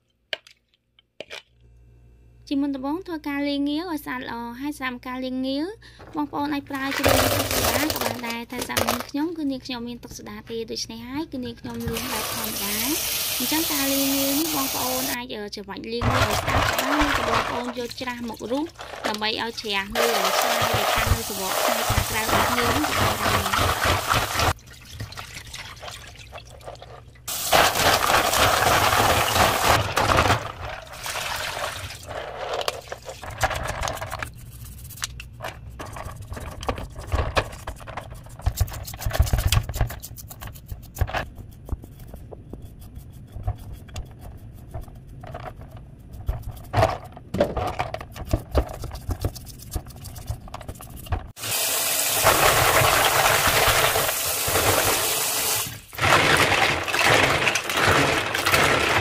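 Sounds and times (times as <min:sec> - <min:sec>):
knocks and clatter in sink: 0:06.8 - 0:09.1, 0:16.0 - 0:34.2, 0:46.7 - 0:48.8, 0:56.0 - 0:59.0
water running from a tap: 0:11.9 - 0:15.2, 0:20.1 - 0:26.6, 0:51.4 - 0:55.8.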